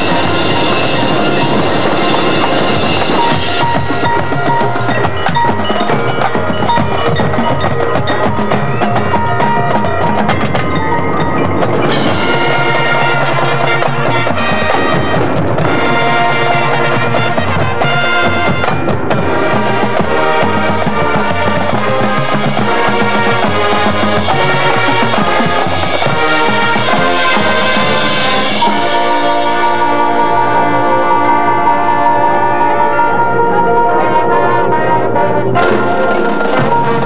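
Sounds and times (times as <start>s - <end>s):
mallet percussion and timpani: 0.0s - 37.0s
marching band brass: 0.0s - 37.0s.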